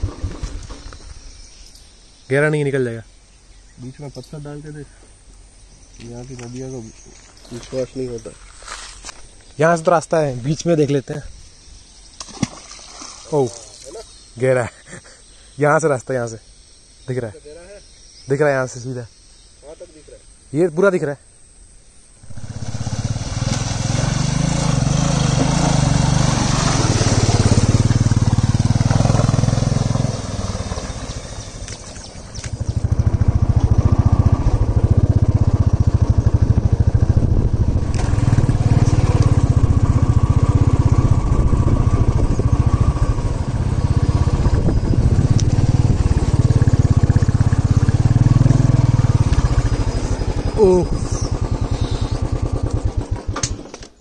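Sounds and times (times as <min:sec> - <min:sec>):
water splashing: 0:12.2 - 0:13.9, 0:22.3 - 0:32.7
motorcycle engine running: 0:22.2 - 0:54.0.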